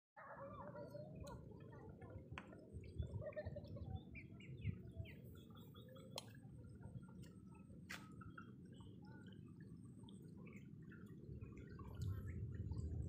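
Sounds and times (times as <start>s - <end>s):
small birds chirping: 2.7s - 12.9s
low rumble: 11.3s - 13.0s.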